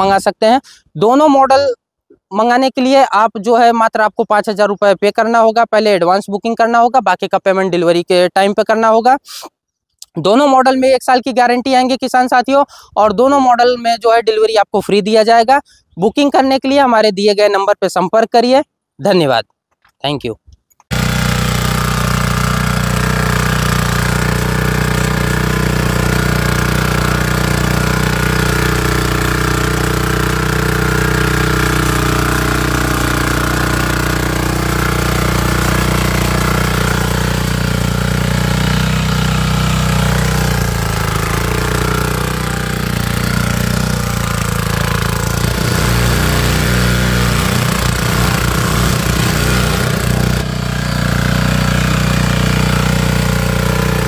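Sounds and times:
diesel tiller engine running: 20.9s - 54.0s
tines churning wet soil: 20.9s - 54.0s.

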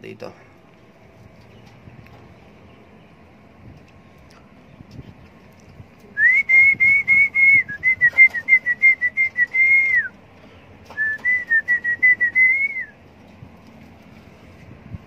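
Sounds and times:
person whistling pulsed notes: 6.2s - 10.2s, 11.0s - 13.0s.

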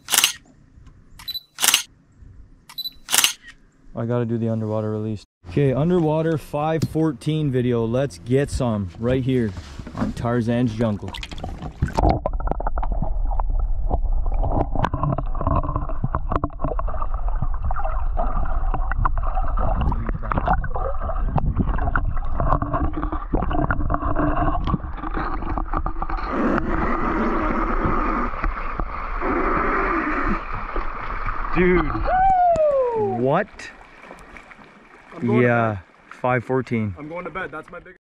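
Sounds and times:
water sloshing and rushing: 9.6s - 38.0s
clicks of water and bubbles: 10.8s - 35.3s.

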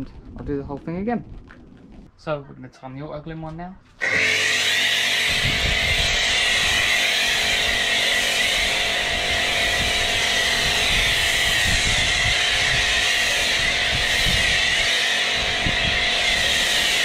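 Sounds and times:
pressure washer motor humming: 4.0s - 17.0s
snow foam spraying hiss: 6.0s - 17.0s.

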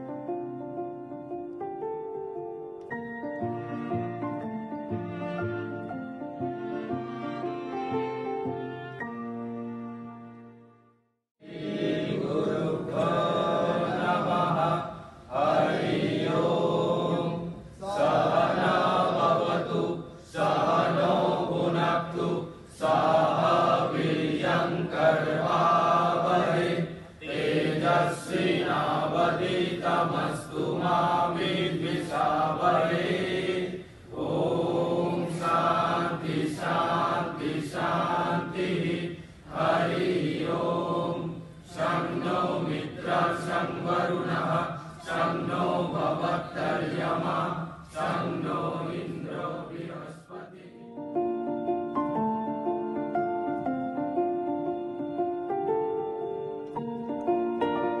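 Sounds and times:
voices chanting a hymn: 11.4s - 51.2s.

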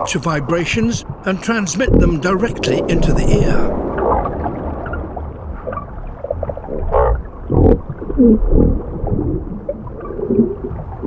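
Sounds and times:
hippopotamus groans underwater: 1.8s - 4.4s, 6.8s - 11.0s.

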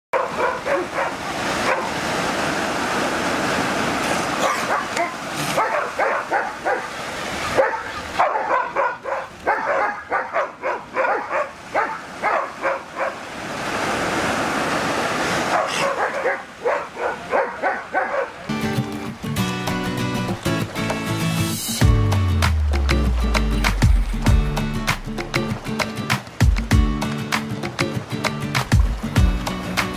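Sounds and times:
dog barking: 0.1s - 2.0s, 4.4s - 13.2s, 15.4s - 18.5s
sea lions barking: 0.2s - 2.1s, 4.3s - 13.3s, 15.1s - 18.6s
surf washing on beach: 0.2s - 21.8s.

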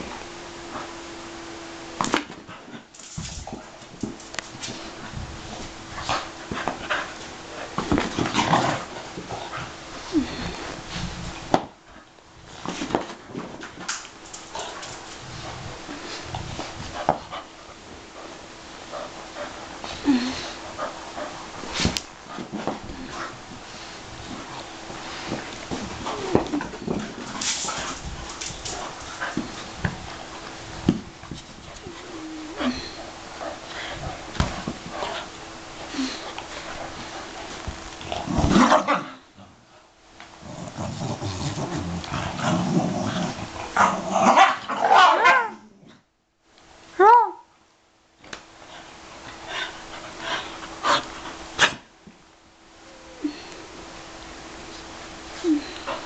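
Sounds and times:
dogs scuffling on carpet: 2.0s - 32.1s, 33.0s - 39.0s
dog whining: 31.7s - 33.1s.

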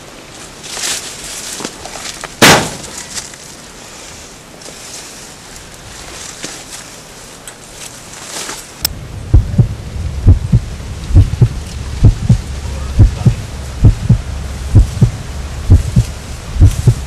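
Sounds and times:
low drone: 8.8s - 17.0s
heartbeat thumps: 9.3s - 17.0s.

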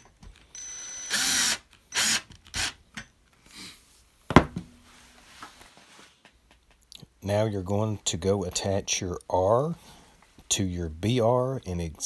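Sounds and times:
power screwdriver driving screws: 0.8s - 2.8s
sharp knock: 4.3s - 4.7s.

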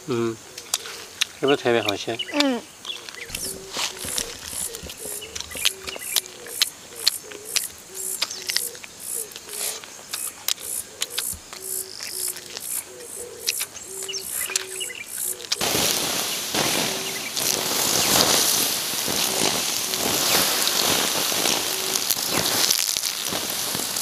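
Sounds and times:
short repeated calls: 0.6s - 18.4s
water hissing on hot embers: 0.6s - 24.0s.

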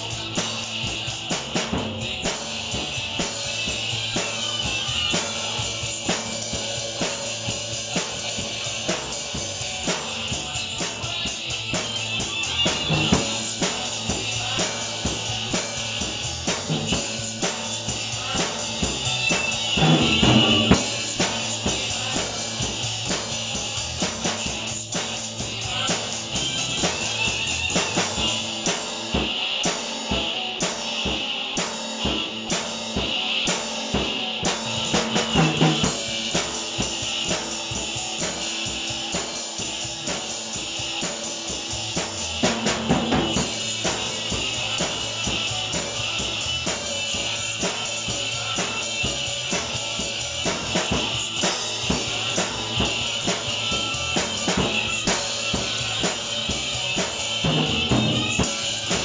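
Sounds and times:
cymbals ringing: 12.3s - 23.0s, 40.2s - 59.0s
snare and bass drum hits: 19.4s - 21.4s.

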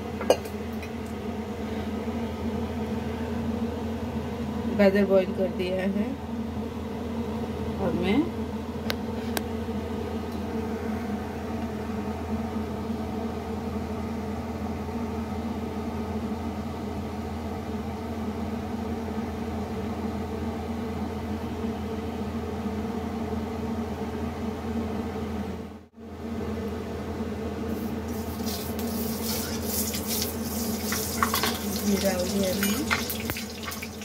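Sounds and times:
machine hum: 25.6s - 34.0s.

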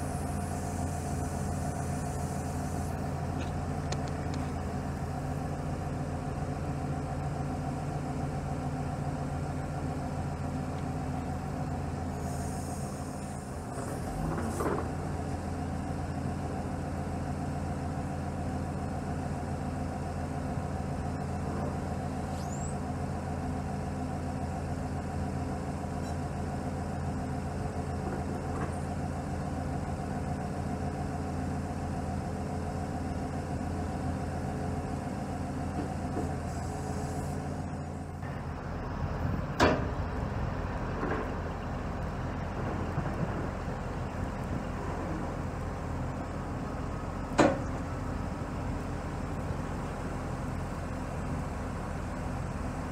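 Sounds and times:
hydraulic hiss: 0.0s - 3.0s, 12.1s - 14.6s
diesel engine running: 0.0s - 52.9s.

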